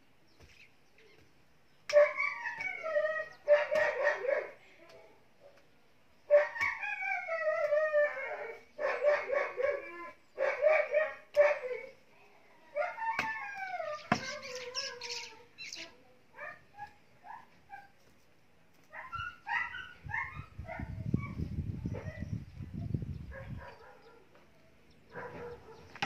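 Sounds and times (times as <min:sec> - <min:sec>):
dog whining and yelping: 0:02.0 - 0:04.2, 0:06.3 - 0:09.8, 0:18.9 - 0:22.2.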